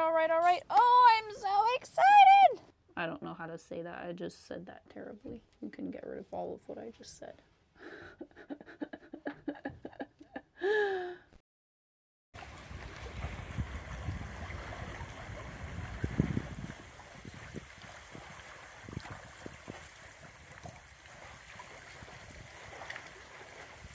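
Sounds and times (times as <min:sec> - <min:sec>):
rushing water and wind: 0:12.4 - 0:23.9.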